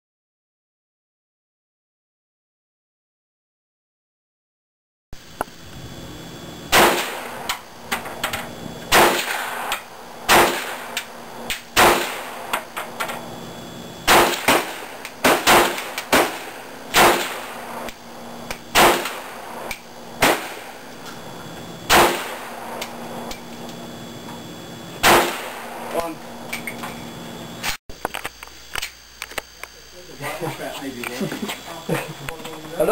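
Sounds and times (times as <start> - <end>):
gunshots with short echo: 6.7 - 7.6, 8.9 - 12.6, 14.1 - 17.9, 18.7 - 20.8, 21.9 - 22.8, 25.0 - 25.9.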